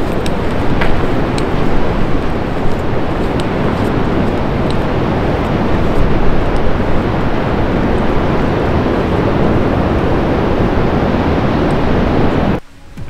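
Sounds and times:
wind buffeting microphone: 0.0s - 12.6s
ocean surf: 0.0s - 13.0s.

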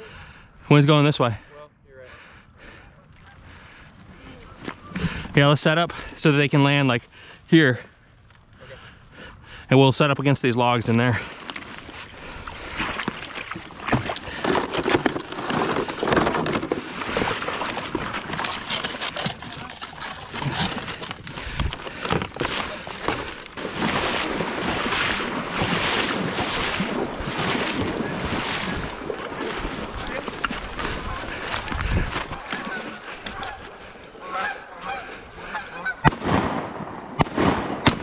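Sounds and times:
paddle splashing in water: 11.2s - 36.5s
knocks and scraping: 12.9s - 26.7s, 27.4s - 33.8s.

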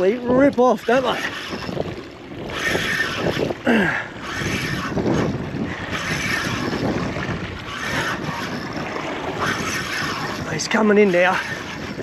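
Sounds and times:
water washing around boat: 0.0s - 12.0s
wind buffeting microphone: 0.0s - 12.0s.

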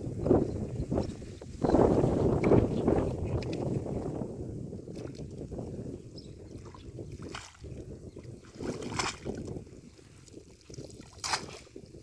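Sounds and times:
wind rumble on microphone: 0.0s - 12.0s
water splashing off a net: 8.6s - 9.5s, 11.0s - 11.8s.

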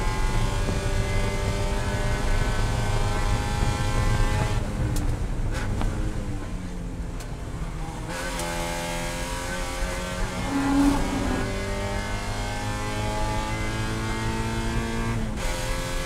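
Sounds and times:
race car engine revving: 8.1s - 16.0s.

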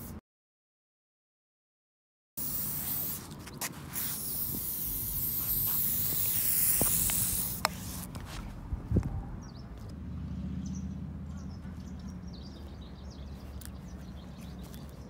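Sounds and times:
aerosol spray can hissing: 2.4s - 8.1s.

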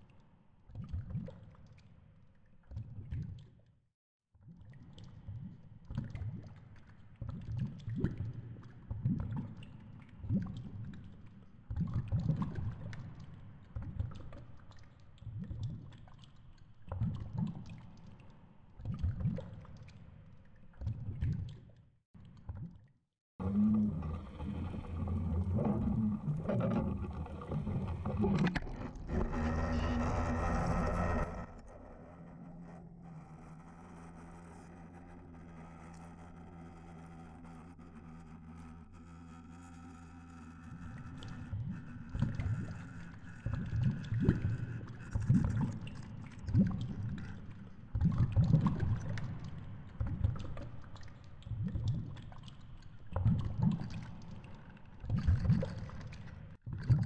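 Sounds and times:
low underwater rumbles: 23.4s - 33.8s, 40.6s - 57.0s.

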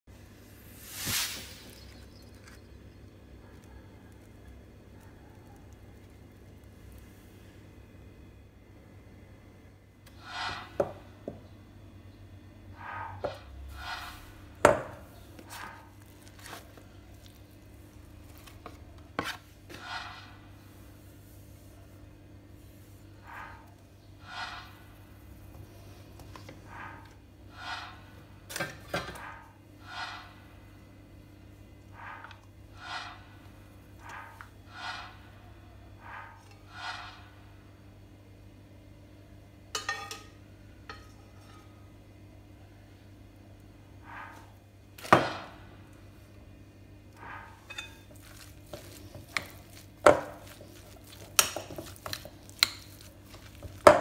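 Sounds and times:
soft hisses: 0.6s - 2.0s
metal spoon clinking glass bowl: 47.6s - 49.6s.

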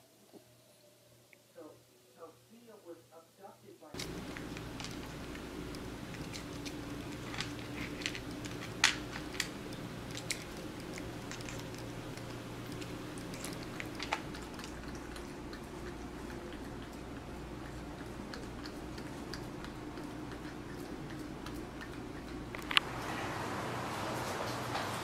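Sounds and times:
low steady hum: 0.0s - 25.0s
cat chewing food: 4.0s - 23.0s.

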